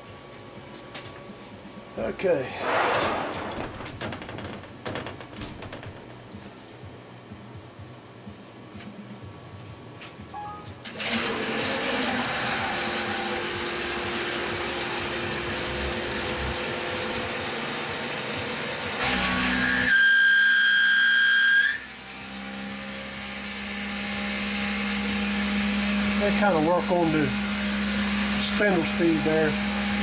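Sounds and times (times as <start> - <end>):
high-pitched machine whine: 10.4 - 30.0
milling machine noise: 10.8 - 19.9, 21.9 - 30.0.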